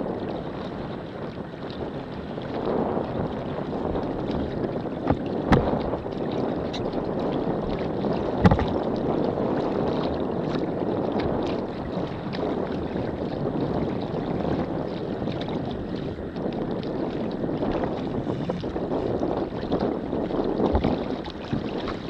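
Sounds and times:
water sloshing around kayak: 0.0s - 22.0s
water slaps: 4.2s - 7.0s, 7.7s - 9.1s, 20.6s - 22.0s.

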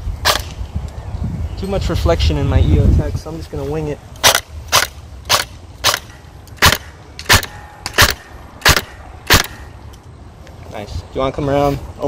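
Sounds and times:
airsoft gun single shots: 0.2s - 0.6s, 4.2s - 9.7s.

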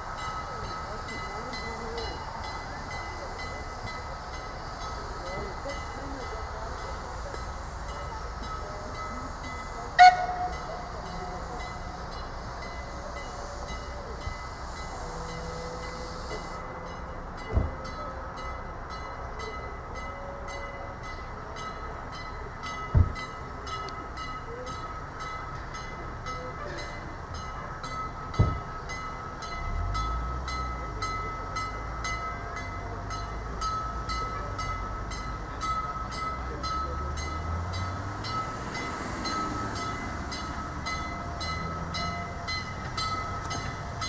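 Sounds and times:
steam hissing: 0.0s - 17.5s.

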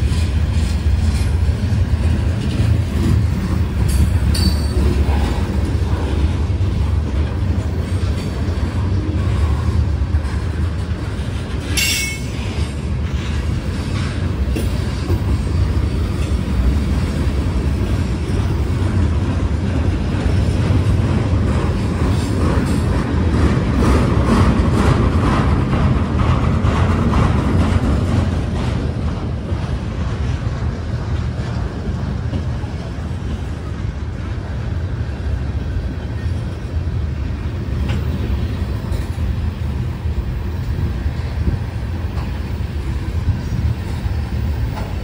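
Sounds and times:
train wheels rumbling on rail: 0.0s - 45.0s.

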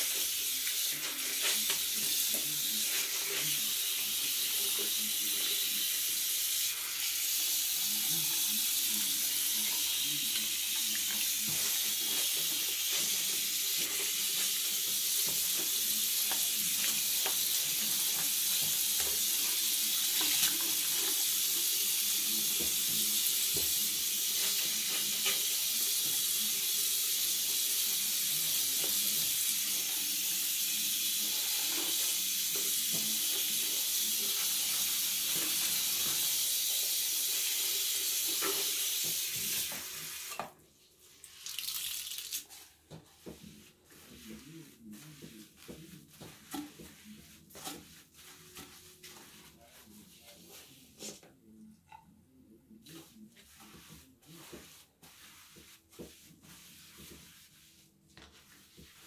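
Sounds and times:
sponge scrubbing basin: 0.0s - 40.3s, 42.4s - 51.4s, 52.7s - 59.0s
faucet running into sink: 3.4s - 40.5s, 41.2s - 42.5s
light scrapes and knocks: 42.5s - 52.1s.

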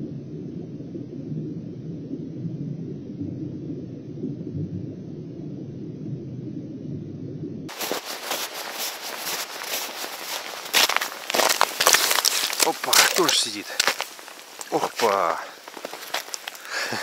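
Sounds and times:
muffled underwater rumble: 0.0s - 7.7s
footsteps crunching on snow: 7.7s - 17.0s.

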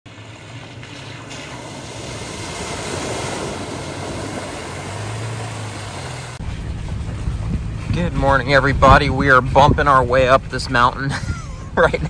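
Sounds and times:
water splashing around tyres: 0.0s - 12.0s
truck engine humming: 0.1s - 12.0s.

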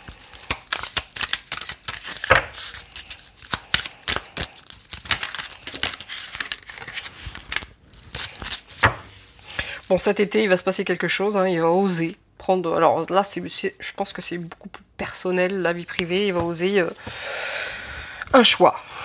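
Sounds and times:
cards being shuffled: 0.0s - 9.6s.

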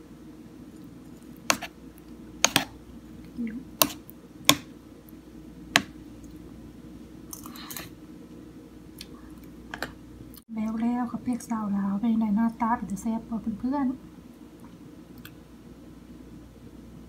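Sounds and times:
spoon scraping bowl: 1.0s - 1.8s, 2.4s - 2.7s, 3.8s - 4.1s.

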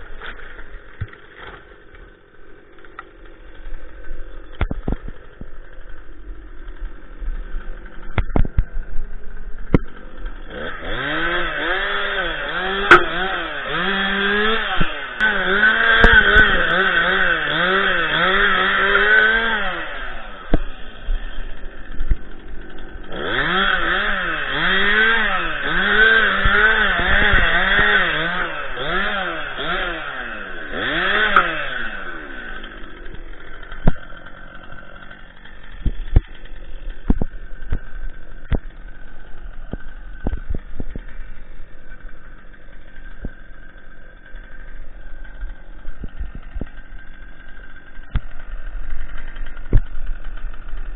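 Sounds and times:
chainsaw cutting branches: 0.0s - 50.9s
chainsaw idling: 0.0s - 50.9s
sharp knocks: 12.8s - 13.3s.

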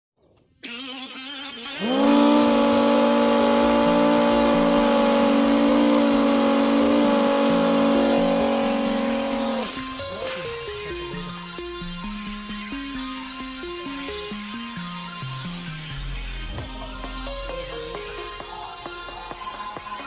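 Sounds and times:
small motors whining: 1.8s - 10.0s.

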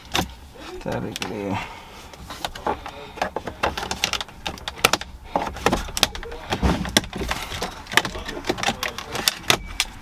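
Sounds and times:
plastic trim clicking and snapping: 2.5s - 10.0s.

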